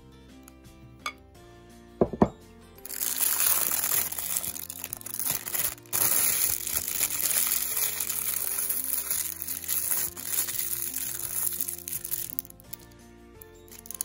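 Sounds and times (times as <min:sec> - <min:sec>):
background music: 0:00.0 - 0:14.0
plastic liner crinkling: 0:02.8 - 0:12.8, 0:13.7 - 0:14.0.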